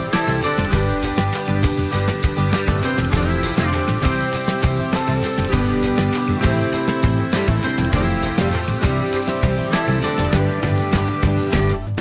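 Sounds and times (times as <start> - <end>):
upbeat music with plucked guitar: 0.0 - 12.0.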